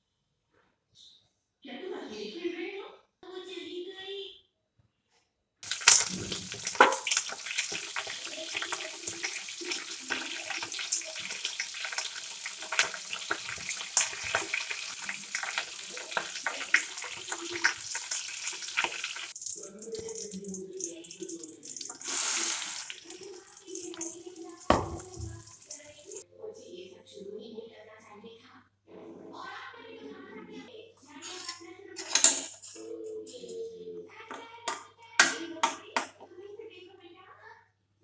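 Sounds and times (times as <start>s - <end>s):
chutney hissing in hot oil: 5.6s - 26.2s
hot oil sizzling: 5.6s - 26.2s
mustard seeds crackling and popping: 5.6s - 26.2s.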